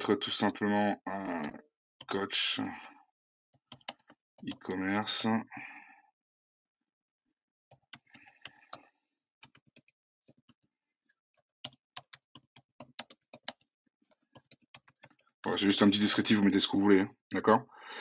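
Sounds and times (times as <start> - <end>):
computer keyboard typing: 3.6 - 4.8, 11.6 - 15.2.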